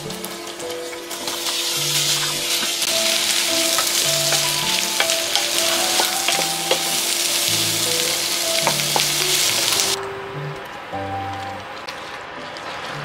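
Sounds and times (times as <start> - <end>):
food sizzling in oil: 0.0 - 10.0.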